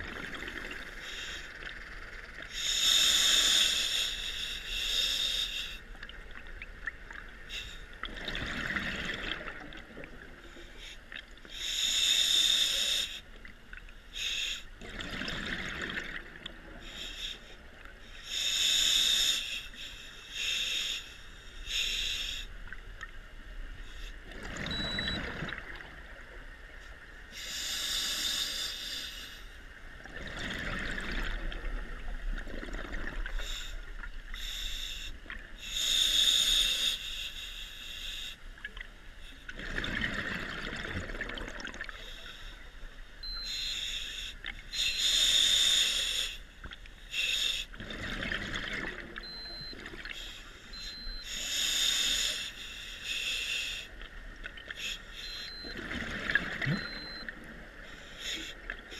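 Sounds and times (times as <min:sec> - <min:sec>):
regulator hissing inhalations: 0:02.5 - 0:05.9, 0:10.7 - 0:13.3, 0:16.8 - 0:22.6, 0:27.3 - 0:29.6, 0:33.4 - 0:38.4, 0:43.3 - 0:47.8, 0:50.2 - 0:54.0, 0:57.8 - 0:58.6
exhaled bubbles rushing: 0:39.6 - 0:41.9.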